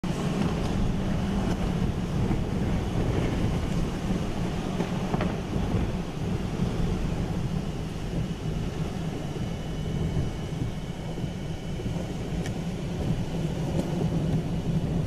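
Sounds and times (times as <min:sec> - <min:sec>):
car cabin rumble: 0:00.0 - 0:15.0
storm wind hissing: 0:00.1 - 0:15.0.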